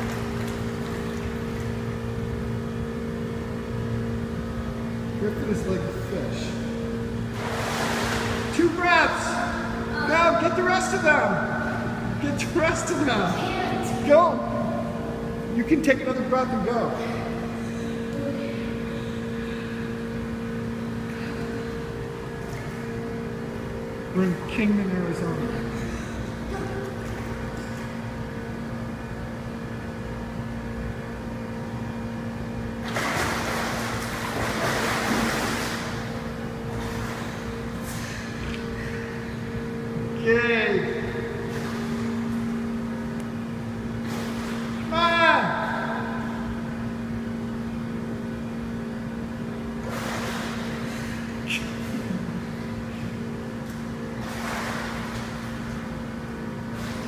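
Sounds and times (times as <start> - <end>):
machine hum: 0.0 - 57.0
swimmer splashing: 7.2 - 15.1, 32.8 - 39.4, 43.9 - 46.7, 49.7 - 57.0
water splash: 7.3 - 8.5, 32.8 - 37.4, 54.2 - 55.7.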